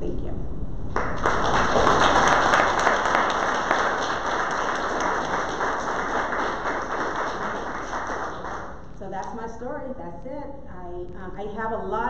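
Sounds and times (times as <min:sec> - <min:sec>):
audience applauding: 0:00.9 - 0:08.8.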